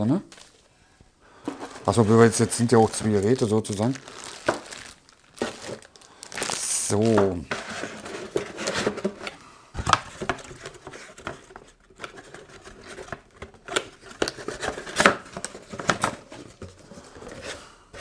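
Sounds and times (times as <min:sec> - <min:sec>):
cardboard box being handled: 0:03.9 - 0:09.4.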